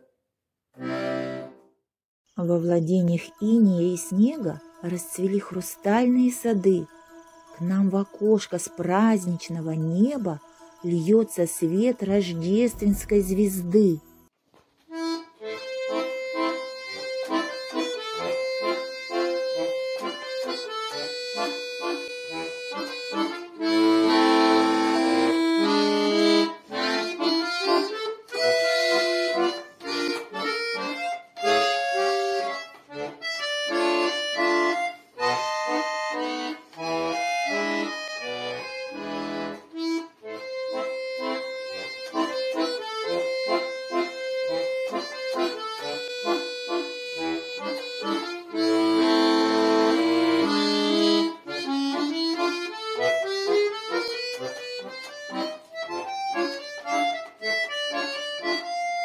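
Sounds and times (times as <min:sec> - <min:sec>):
button accordion melody: 0:00.7 - 0:01.8, 0:02.4 - 0:59.0.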